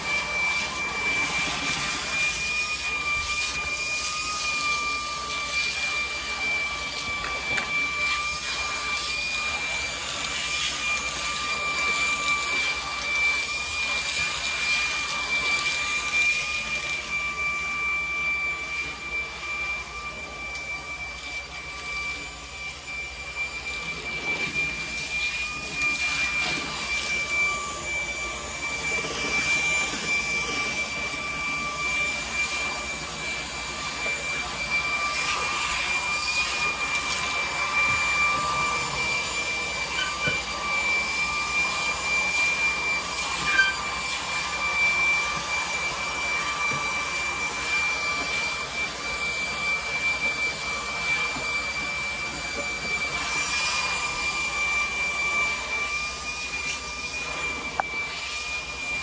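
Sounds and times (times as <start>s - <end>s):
vacuum cleaner running: 0.0s - 59.0s.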